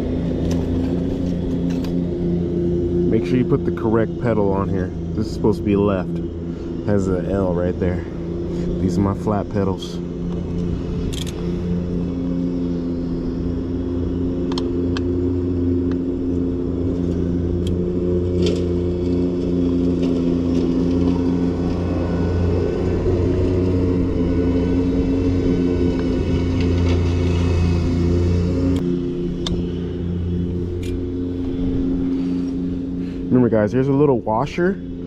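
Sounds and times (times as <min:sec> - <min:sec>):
lawnmower engine droning: 0:00.0 - 0:35.0.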